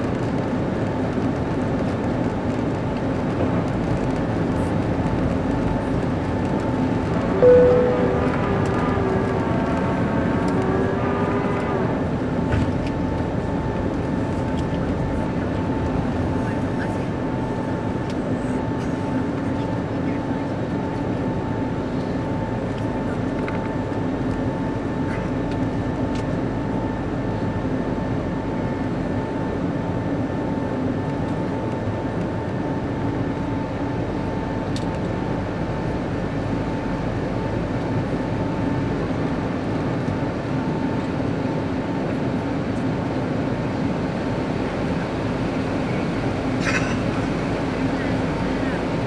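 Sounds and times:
airplane cabin engine rush: 0:00.0 - 0:49.0
low hum: 0:05.1 - 0:16.6
higher steady tone: 0:07.3 - 0:10.5.

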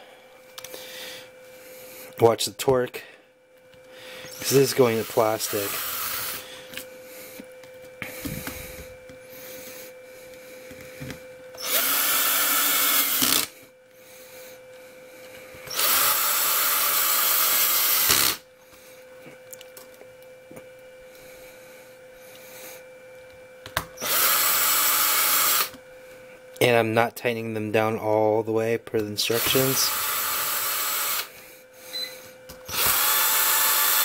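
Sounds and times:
cordless screw gun running: 0:04.3 - 0:06.5, 0:11.6 - 0:13.6, 0:15.7 - 0:18.4, 0:24.0 - 0:25.8, 0:29.4 - 0:31.3, 0:32.6 - 0:34.0.

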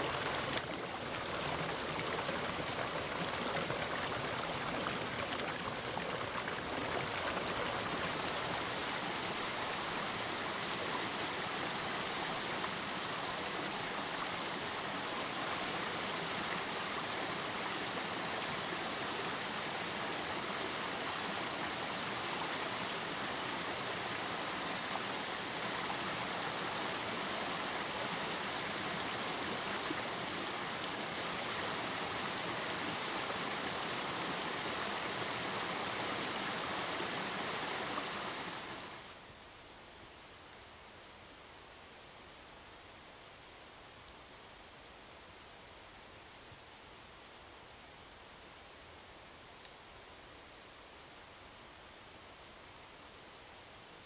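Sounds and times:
running water rushing: 0:00.0 - 0:39.3.

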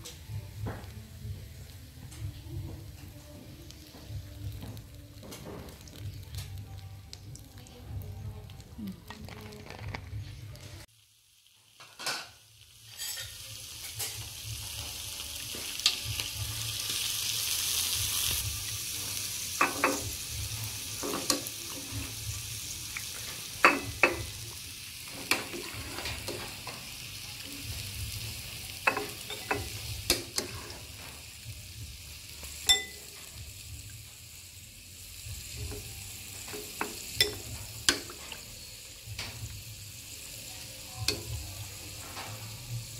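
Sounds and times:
metal ladle clinking on pot: 0:32.6 - 0:33.0.

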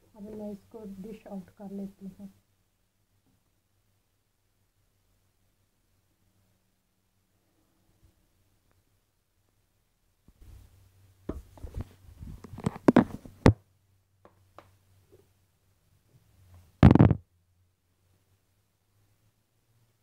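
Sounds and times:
loud short thump: 0:16.8 - 0:17.2.

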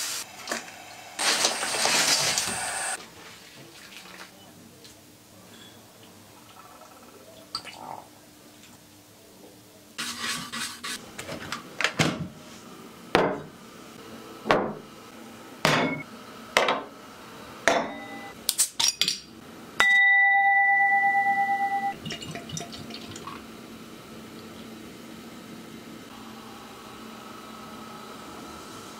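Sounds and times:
two-note ringing tone: 0:17.9 - 0:18.4, 0:19.8 - 0:22.0
beer pouring into a glass: 0:22.0 - 0:23.5.

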